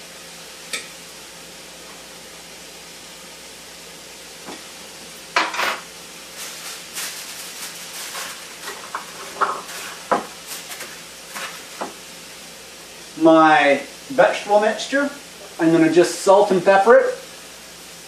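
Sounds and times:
vegetables sizzling in oil: 0:00.0 - 0:18.0
aluminum foil tearing and crinkling: 0:06.3 - 0:11.8.

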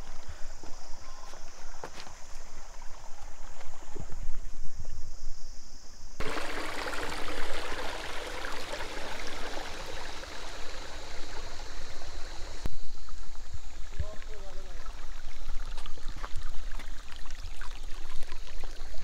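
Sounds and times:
footsteps on loose stones: 0:00.0 - 0:02.6
stream trickling over rocks: 0:06.2 - 0:19.0.

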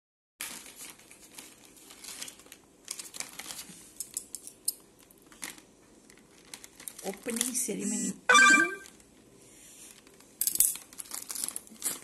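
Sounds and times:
plastic tray crinkling: 0:00.4 - 0:03.8, 0:05.2 - 0:07.6, 0:10.8 - 0:12.0.

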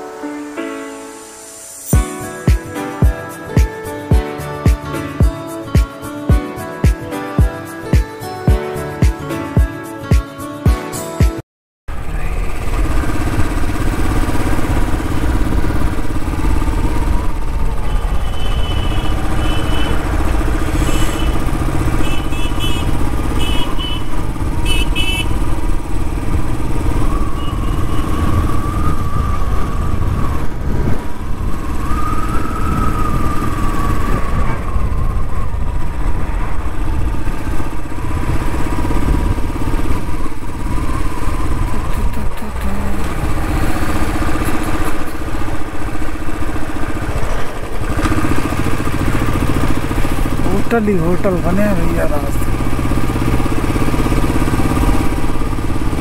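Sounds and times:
motorcycle engine running: 0:11.9 - 0:56.0
wind on microphone: 0:25.8 - 0:50.4.

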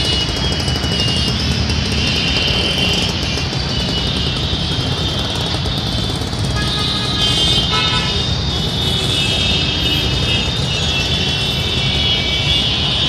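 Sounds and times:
motorcycle and car engines: 0:00.0 - 0:13.0
car horns honking: 0:06.6 - 0:13.0.

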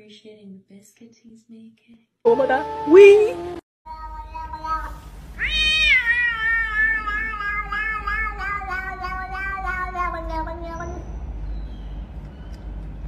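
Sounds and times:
cat meowing: 0:03.9 - 0:11.1.

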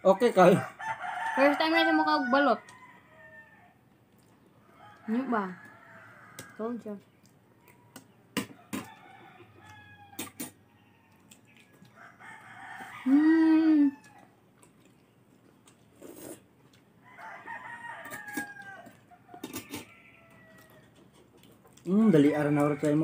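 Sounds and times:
rooster crowing: 0:00.4 - 0:03.8, 0:04.6 - 0:06.8, 0:07.5 - 0:14.4, 0:17.0 - 0:21.0.

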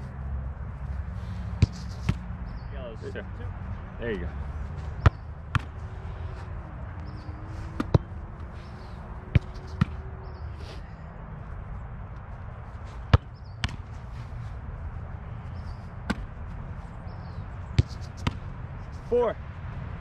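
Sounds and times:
low outdoor rumble: 0:00.0 - 0:20.0
soccer ball being kicked: 0:01.5 - 0:02.4, 0:04.8 - 0:05.9, 0:06.9 - 0:08.6, 0:09.2 - 0:10.2, 0:12.8 - 0:14.1, 0:15.8 - 0:16.7, 0:17.3 - 0:18.7.

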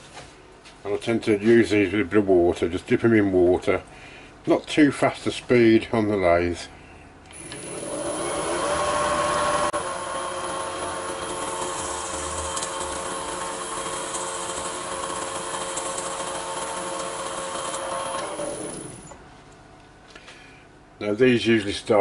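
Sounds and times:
wood lathe motor whine: 0:07.3 - 0:19.2.

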